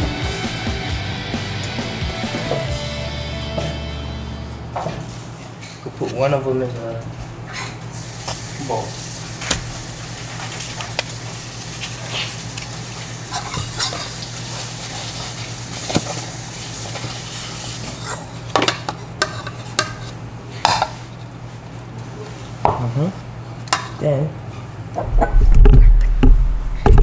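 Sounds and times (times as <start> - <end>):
steady low hum: 24.4 - 27.0.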